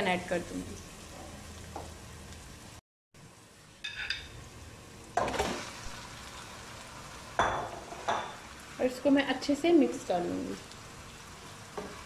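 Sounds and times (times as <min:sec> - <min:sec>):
onions sizzling in hot oil: 0:00.0 - 0:12.0
chicken sizzling in hot oil: 0:03.4 - 0:12.0.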